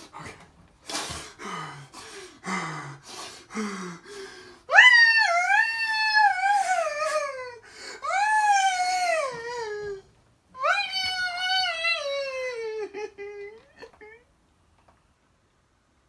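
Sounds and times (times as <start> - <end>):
man howling: 4.7 - 10.0.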